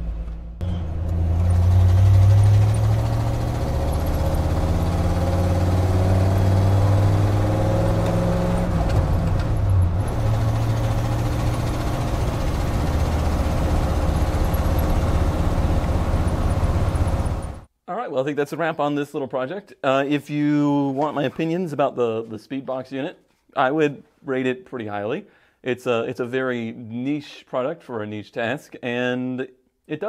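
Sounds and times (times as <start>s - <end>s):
truck engine running: 0.0s - 17.7s.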